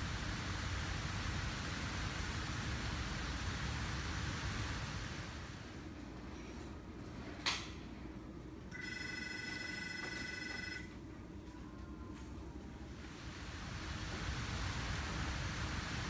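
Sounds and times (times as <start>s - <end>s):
low room hiss: 0.0s - 16.0s.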